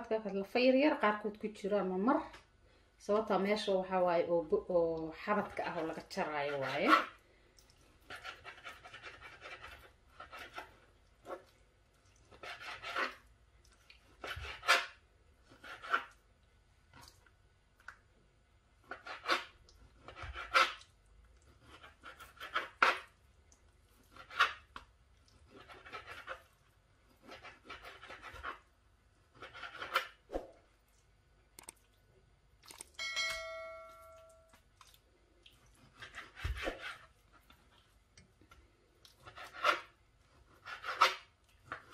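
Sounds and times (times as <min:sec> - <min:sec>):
knife slicing on cutting board: 0:29.4 - 0:30.5, 0:35.9 - 0:37.2, 0:39.2 - 0:41.9
short electronic chime: 0:33.0 - 0:34.5.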